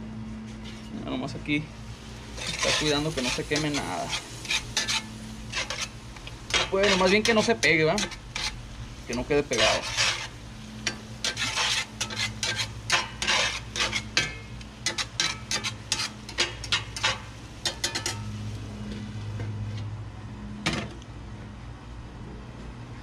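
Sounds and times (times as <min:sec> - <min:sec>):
metal spatula scraping skillet: 0:02.3 - 0:19.9.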